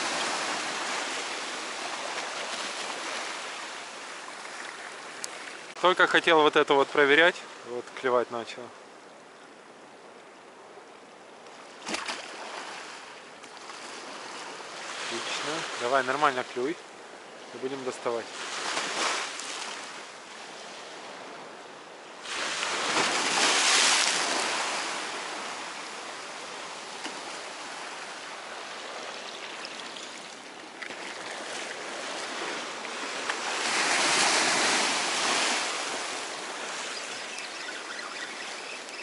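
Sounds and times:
waves breaking: 0.0s - 8.7s, 11.4s - 39.0s
surf washing on shore: 0.0s - 8.8s, 11.5s - 39.0s.

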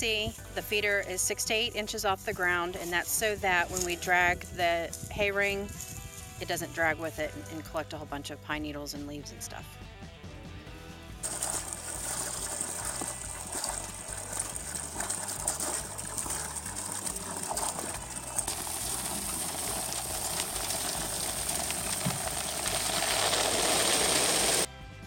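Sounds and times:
water pouring into tub: 11.2s - 24.7s.

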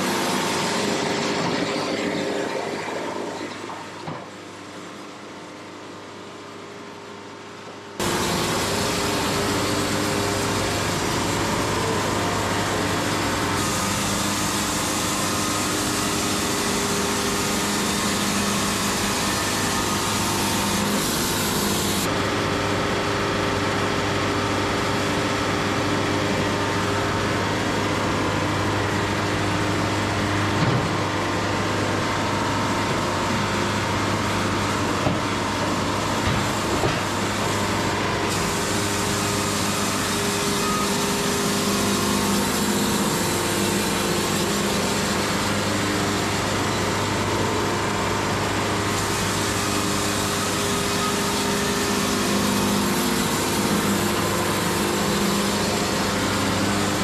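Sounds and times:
band sawmill sawing wood: 47.8s - 57.0s.

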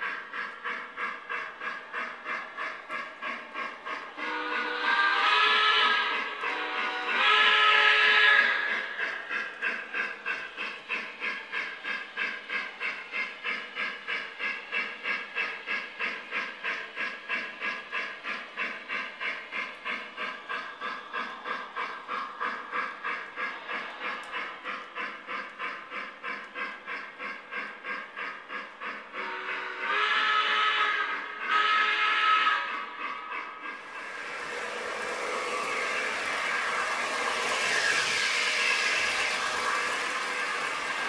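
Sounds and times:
model train running on track: 0.0s - 41.0s
steam exhaust chuff through speaker: 33.8s - 41.0s.

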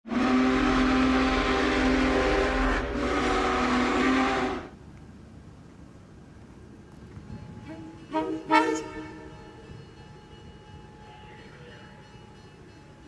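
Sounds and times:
locomotive air horn blasts: 0.1s - 4.7s, 7.6s - 9.8s.

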